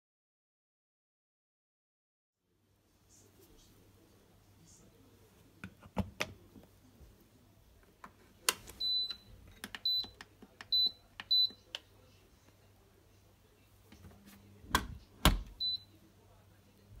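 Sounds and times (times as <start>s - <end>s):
dishwasher button beeps: 8.8s - 11.6s, 14.8s - 15.8s.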